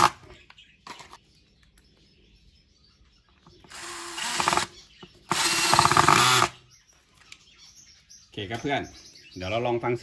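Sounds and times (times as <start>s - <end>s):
cordless drill driving screws: 3.7s - 6.6s.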